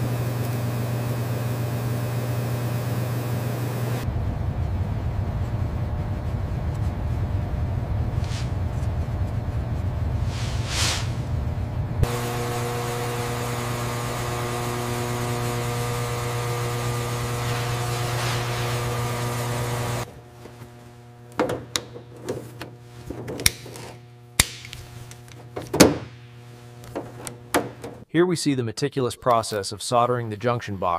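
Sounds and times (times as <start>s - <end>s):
electrical hum of steady tones: 0.0s - 28.0s
steady low hum: 4.0s - 28.0s
short whooshes: 8.2s - 8.6s, 10.2s - 11.3s.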